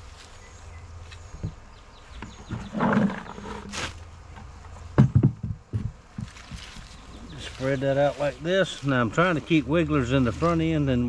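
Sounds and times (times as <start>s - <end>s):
rustling leaf mulch: 6.2s - 11.0s.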